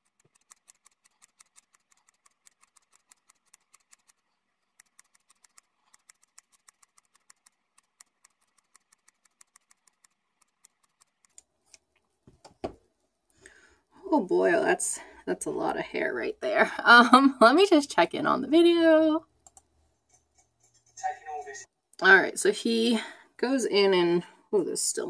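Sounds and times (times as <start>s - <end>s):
scissors snipping hair: 0.0s - 11.8s.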